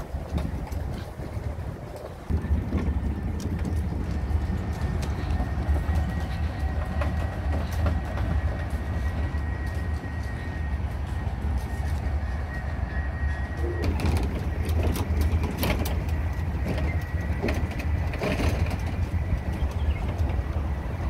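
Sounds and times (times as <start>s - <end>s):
wheels rumbling on paving stones: 0.0s - 21.0s
faint high whine: 4.4s - 15.5s.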